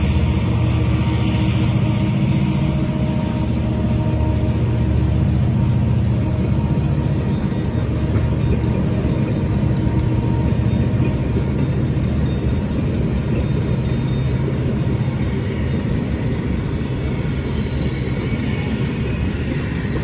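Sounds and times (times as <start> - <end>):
train wheels rumbling and rattling: 0.0 - 20.0.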